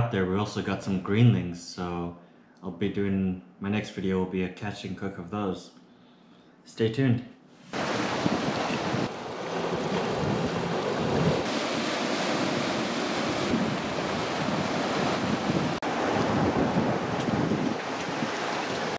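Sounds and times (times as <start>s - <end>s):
ocean surf washing against rocks: 7.7s - 18.9s
wind buffeting microphone: 7.8s - 18.9s.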